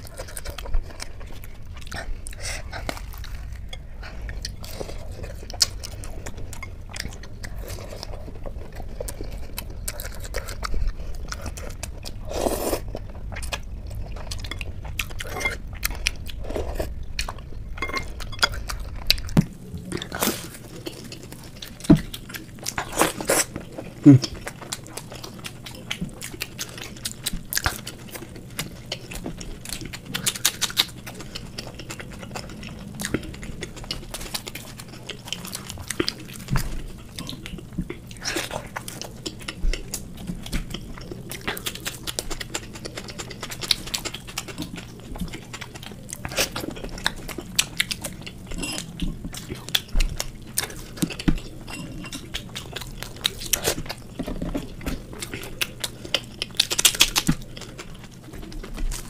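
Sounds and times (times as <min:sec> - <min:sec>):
crunchy chewing: 0:00.0 - 0:59.0
wet mouth sounds: 0:23.3 - 0:24.4.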